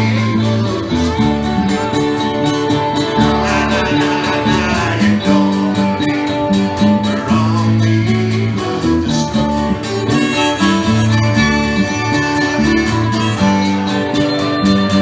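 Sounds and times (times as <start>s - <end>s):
bass line: 0.0s - 15.0s
strummed acoustic guitar: 0.0s - 15.0s.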